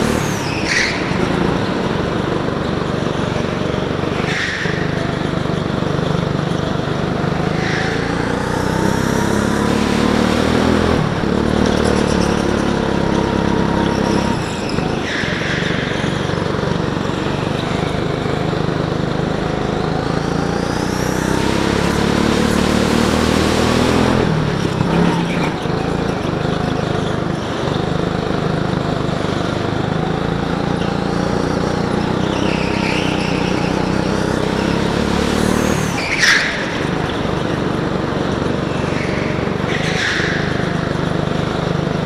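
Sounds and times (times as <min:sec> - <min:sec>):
tyre squeals: 0:00.0 - 0:21.6, 0:30.1 - 0:42.0
go-kart engine running hard: 0:00.0 - 0:42.0.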